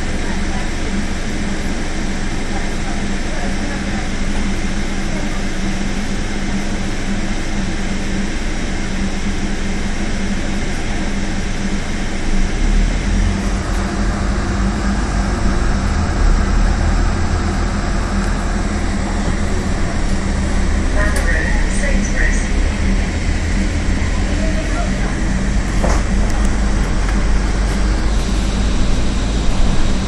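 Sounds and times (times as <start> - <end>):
bus diesel engine drone: 0.0 - 30.0
deep low rumble: 0.0 - 30.0
road and tyre noise: 10.2 - 30.0.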